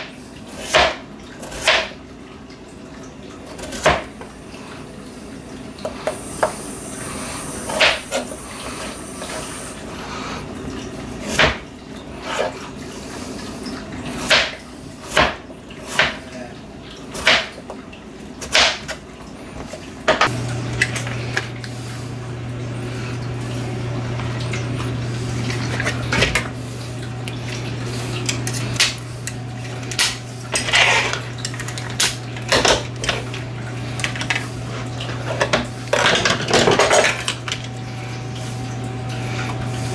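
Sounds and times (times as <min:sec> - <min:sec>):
knife chopping on cutting board: 0:00.6 - 0:02.0, 0:14.2 - 0:16.2.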